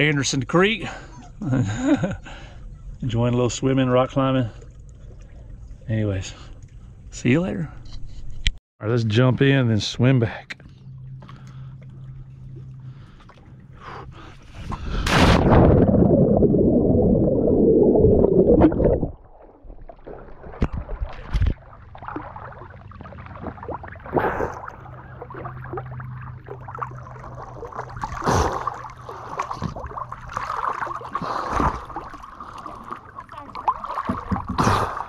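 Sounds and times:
water lapping and sloshing: 0.8s - 8.2s, 10.1s - 16.1s, 18.5s - 35.0s
underwater rush of bubbles: 14.8s - 35.0s
swimming stroke splashes: 19.4s - 35.0s.

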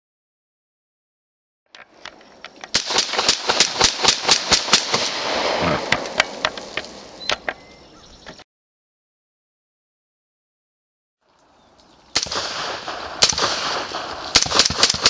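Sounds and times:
rifle shots: 2.7s - 7.2s, 12.2s - 15.0s.

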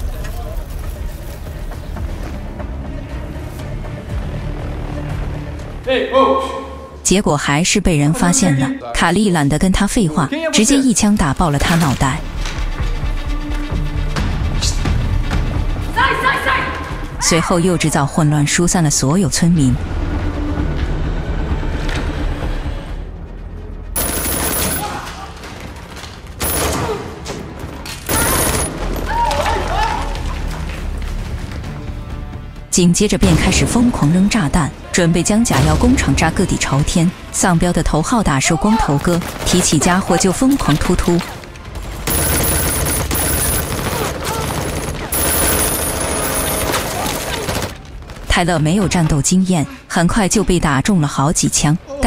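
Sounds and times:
background music: 0.0s - 52.0s
machine gun firing: 24.0s - 25.1s, 26.4s - 27.2s, 28.1s - 29.0s, 41.8s - 48.3s
gunfire: 24.0s - 25.3s, 26.4s - 27.5s, 28.1s - 29.0s, 41.8s - 48.3s.

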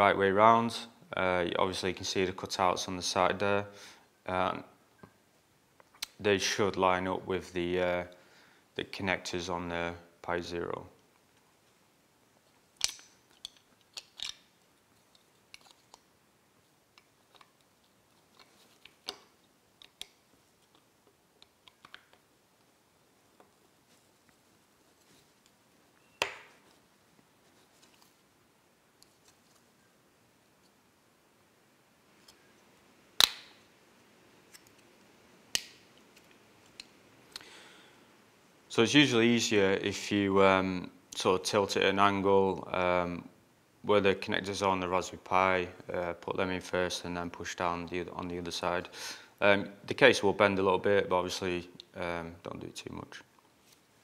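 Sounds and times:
small plastic parts clicking: 12.8s - 14.5s, 16.9s - 22.2s.

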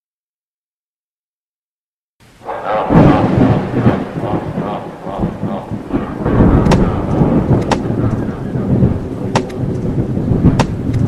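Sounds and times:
rain: 2.2s - 11.0s
thunder rumbling: 2.3s - 11.0s
sharp thunder cracks: 2.4s - 11.0s.

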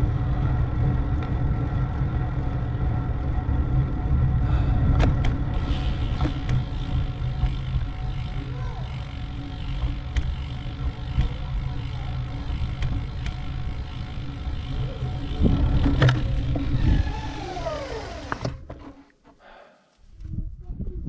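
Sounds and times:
road rumble: 0.0s - 18.8s
wind on microphone: 20.1s - 21.0s.

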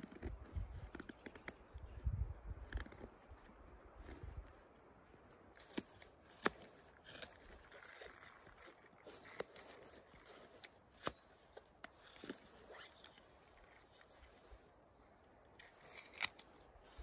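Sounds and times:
knife cutting wood: 5.5s - 14.6s, 15.4s - 17.0s.

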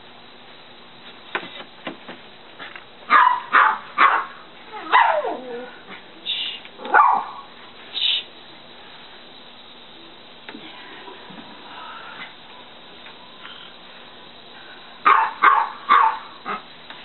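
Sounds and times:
dog barking: 3.1s - 5.4s, 6.9s - 7.5s, 15.0s - 16.6s.

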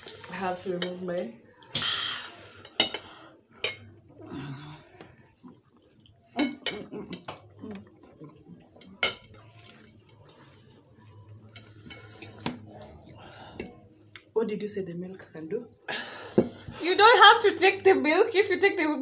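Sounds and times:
forks scraping ceramic plates: 11.5s - 12.4s.

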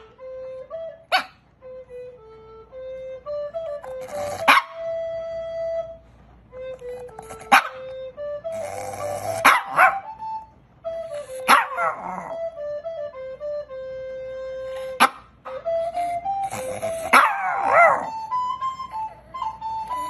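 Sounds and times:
flute-like melody: 0.0s - 20.0s
small dog barking and howling: 3.9s - 5.0s, 7.1s - 10.2s, 11.2s - 12.5s, 16.4s - 18.3s.

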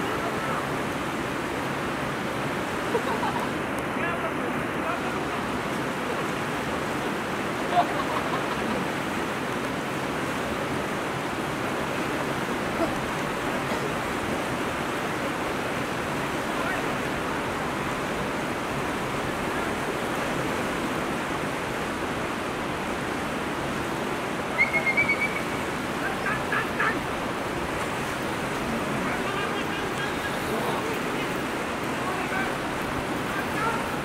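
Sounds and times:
river water over stones: 0.0s - 34.0s
short high-pitched call: 24.5s - 25.6s.

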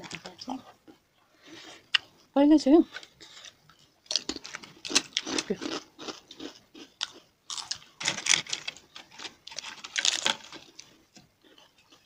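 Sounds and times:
crunching of wafer being chewed: 2.9s - 12.0s.

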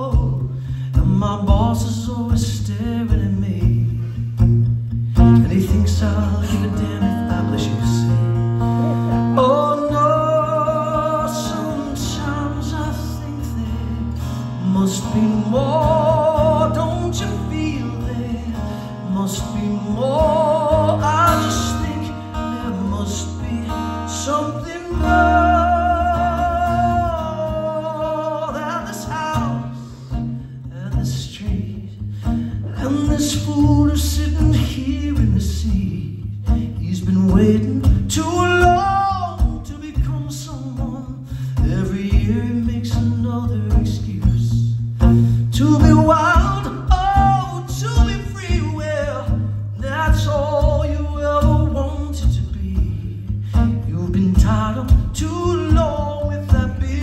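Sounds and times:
acoustic guitar: 0.0s - 57.0s
man singing through a pa: 14.6s - 29.7s, 32.6s - 44.7s, 45.6s - 57.0s.

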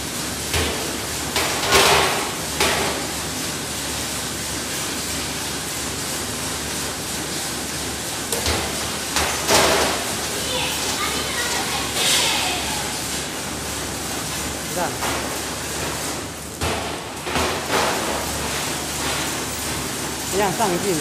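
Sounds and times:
conveyors running: 0.0s - 21.0s
sharp knocks and clatters: 0.5s - 3.0s, 8.3s - 10.1s, 15.0s - 19.8s.

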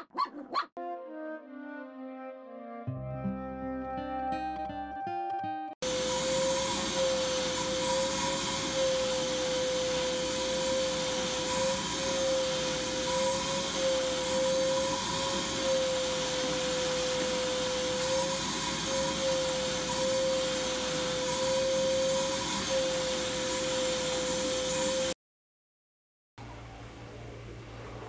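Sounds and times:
background music: 0.8s - 5.8s
shop vacuum whining: 5.8s - 25.2s, 26.4s - 28.0s.

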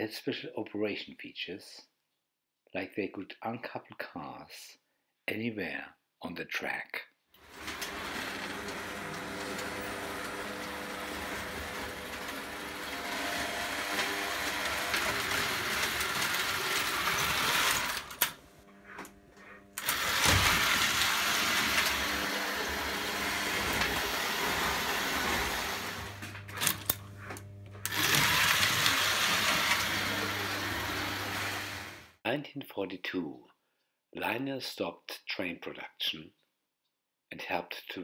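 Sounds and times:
toy train wheel noise: 7.4s - 32.1s
toy train motor whirring: 7.4s - 32.2s.

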